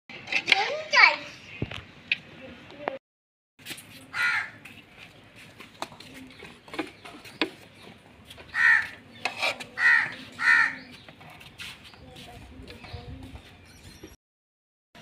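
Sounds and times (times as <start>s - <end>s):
crow cawing: 4.1s - 4.6s, 8.5s - 9.0s, 9.8s - 10.8s.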